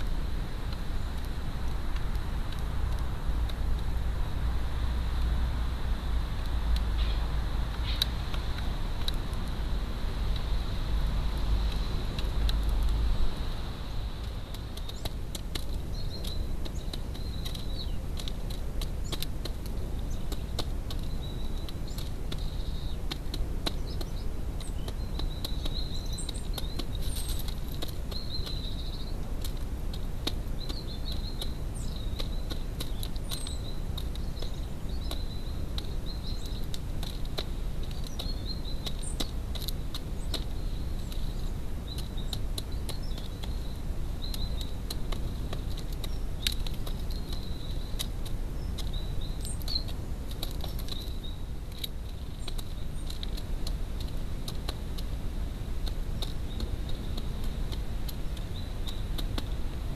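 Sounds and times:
faint bird chirps: 6.9 - 8.2, 20.0 - 29.3, 30.5 - 36.8, 37.8 - 39.4, 46.0 - 50.0
pigeon pecking seed: 7.7 - 59.9.

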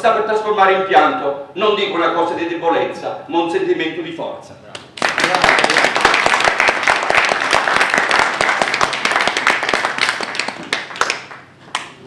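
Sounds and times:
audience applauding: 5.0 - 11.5.

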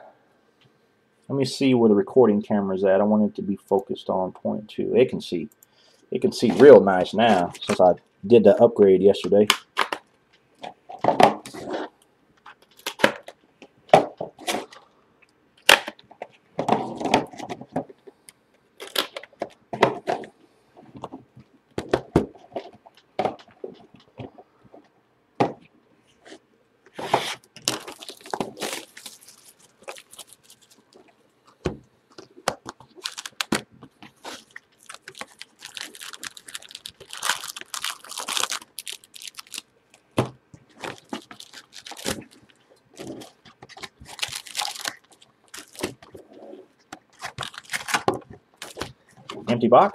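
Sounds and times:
plastic wrap crinkling and tearing: 12.6 - 13.3, 18.8 - 19.5, 27.0 - 40.0, 40.7 - 49.6.

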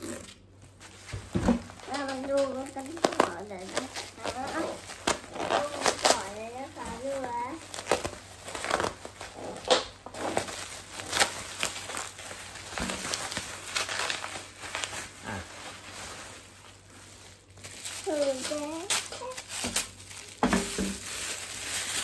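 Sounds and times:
bubble wrap and plastic bag crinkling: 0.0 - 22.0.

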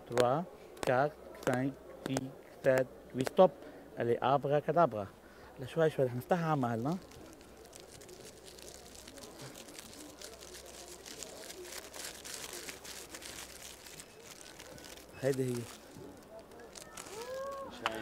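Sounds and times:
paper crinkling: 6.1 - 18.0.

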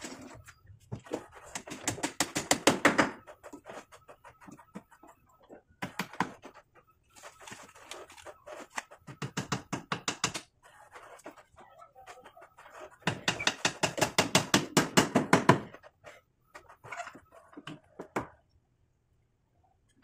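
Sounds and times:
hammer striking nails into wood: 1.8 - 3.2, 9.2 - 10.5, 13.0 - 15.7.

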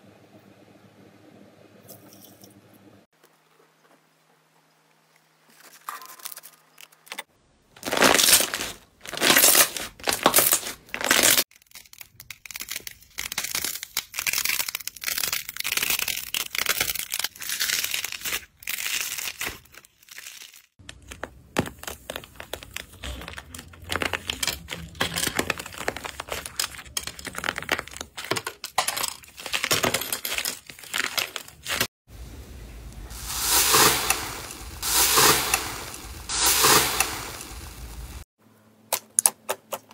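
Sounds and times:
slime crackling and tearing: 7.8 - 28.2.

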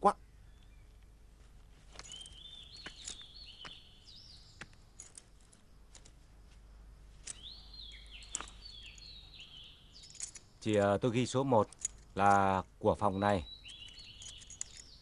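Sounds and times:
bird chirping: 0.0 - 1.3, 1.9 - 6.1, 6.8 - 15.0
keys jingling clicks: 1.9 - 6.2, 7.2 - 10.6, 11.4 - 12.6, 13.5 - 15.0.

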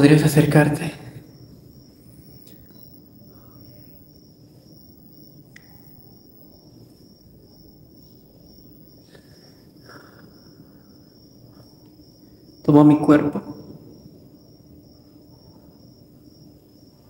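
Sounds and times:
high-pitched insect trill: 0.0 - 17.0
faint clicks: 5.5 - 6.0.

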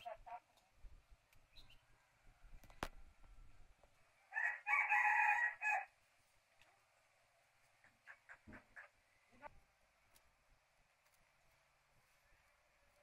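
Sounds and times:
rooster crowing: 4.3 - 6.0.

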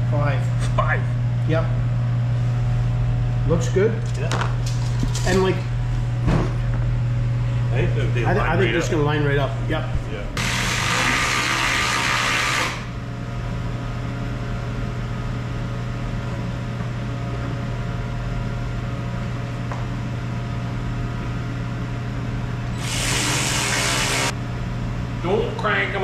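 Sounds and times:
steady low hum: 0.0 - 26.0
power drill running: 10.4 - 12.9, 22.7 - 24.3.

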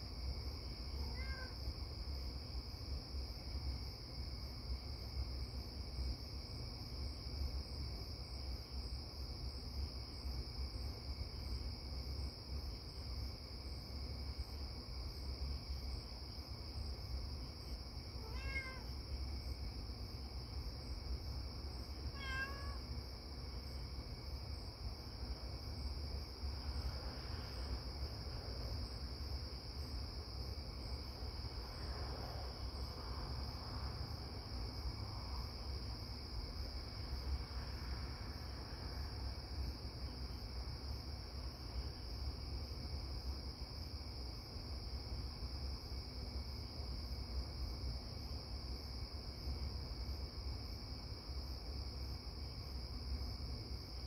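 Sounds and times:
crickets chirring: 0.1 - 54.0
cat meowing: 1.0 - 1.6, 18.2 - 18.9, 22.1 - 22.8.

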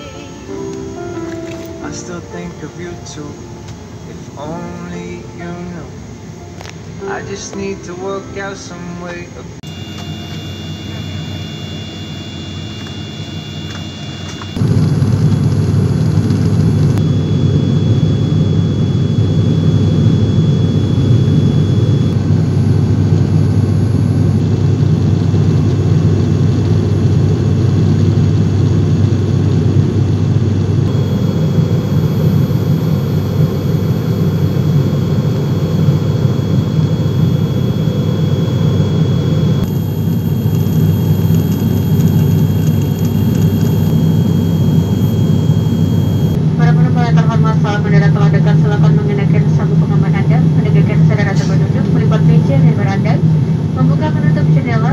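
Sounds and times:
faint high-pitched tone: 0.0 - 14.6, 30.9 - 46.4
airliner cabin engine drone: 0.0 - 54.9.

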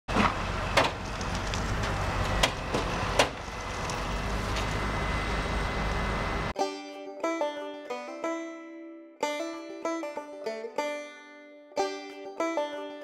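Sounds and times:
tow truck engine running: 0.1 - 6.6.

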